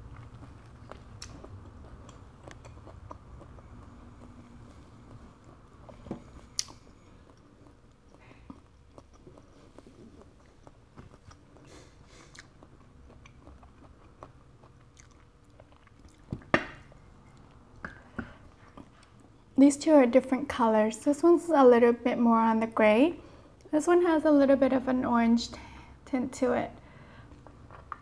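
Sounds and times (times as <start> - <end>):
person chewing: 0.0 - 19.6.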